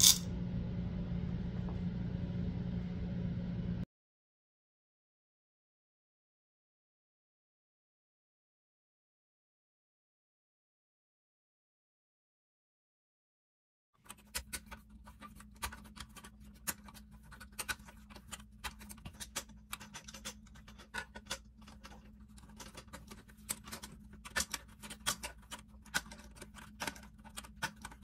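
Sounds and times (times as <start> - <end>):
steady low hum: 0.0 - 3.8
small clicks and scratches: 14.0 - 28.0.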